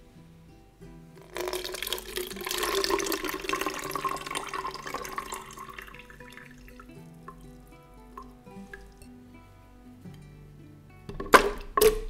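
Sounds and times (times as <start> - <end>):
liquid pouring through strainer: 1.2 - 9.1.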